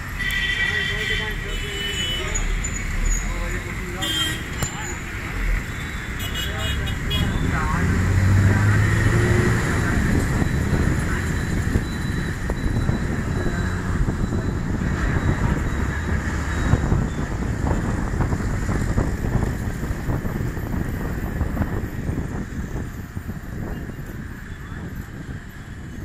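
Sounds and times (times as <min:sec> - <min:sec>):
bus engine and road noise: 0:00.0 - 0:26.0
wind rushing past microphone: 0:06.8 - 0:26.0.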